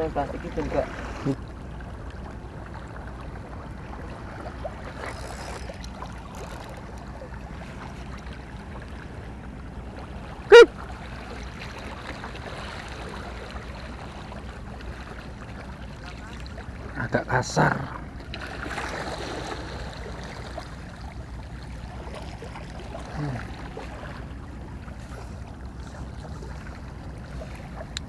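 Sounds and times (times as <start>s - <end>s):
harbour water ambience: 0.0s - 28.0s
sharp pitched squeak: 5.0s - 6.8s.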